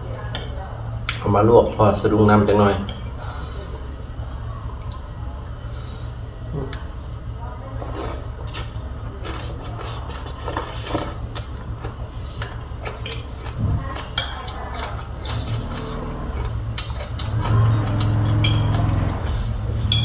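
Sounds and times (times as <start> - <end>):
steady low hum: 0.0 - 20.0
person slurping and chewing noodles: 7.8 - 20.0.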